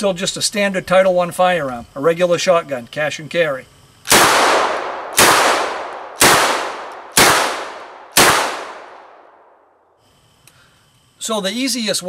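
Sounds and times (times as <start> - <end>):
shotgun shots echoing: 4.1 - 9.6.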